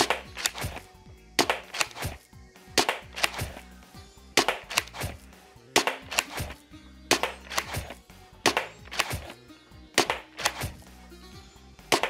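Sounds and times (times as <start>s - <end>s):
foam dart blaster shots clacking: 0.0s - 0.8s, 1.4s - 2.2s, 2.8s - 3.6s, 4.4s - 9.4s, 10.0s - 10.9s.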